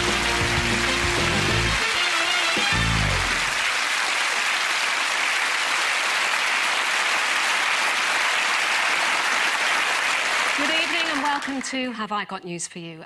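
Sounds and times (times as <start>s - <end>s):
music: 0.0s - 3.6s
studio audience applauding: 0.0s - 11.9s.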